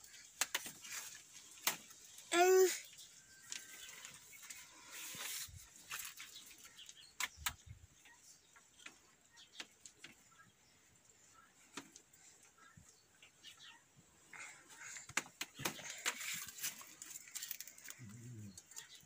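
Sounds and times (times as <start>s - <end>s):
plastic tubing rustling and scraping: 0.0s - 7.6s, 14.4s - 19.0s.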